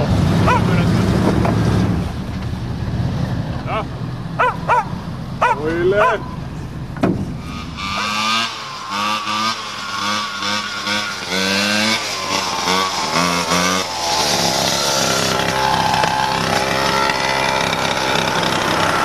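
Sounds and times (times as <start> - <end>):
small two-stroke engine revving: 0.0 - 2.2, 7.3 - 19.0.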